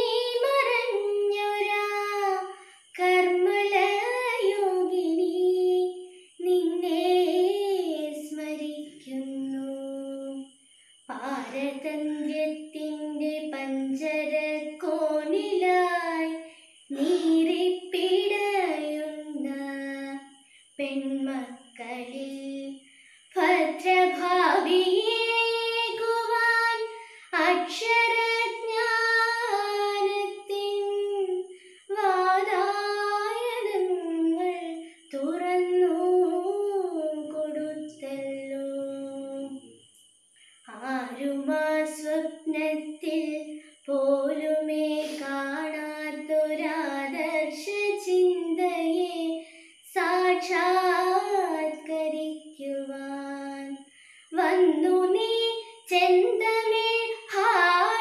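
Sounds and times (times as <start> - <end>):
woman singing unaccompanied: 0.0 - 39.9, 40.6 - 58.0.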